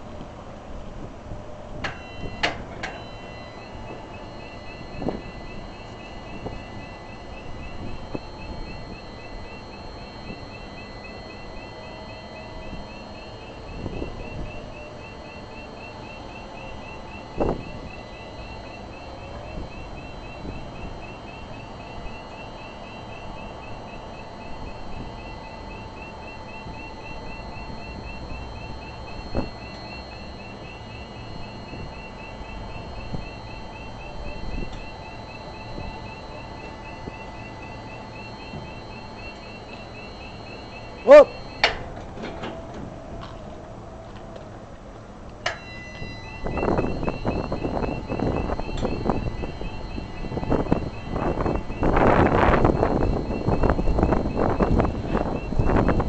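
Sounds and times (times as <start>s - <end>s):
high-pitched warning chirping: 1.8s - 42.0s, 45.4s - 56.0s.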